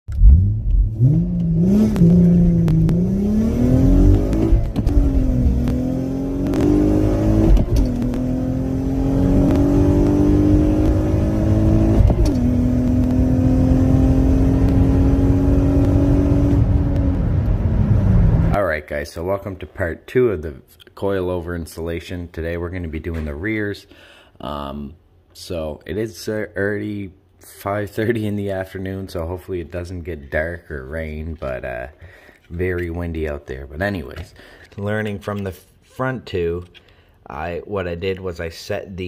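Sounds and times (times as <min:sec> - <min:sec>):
car engine revving through gears: 0:00.1 - 0:18.6.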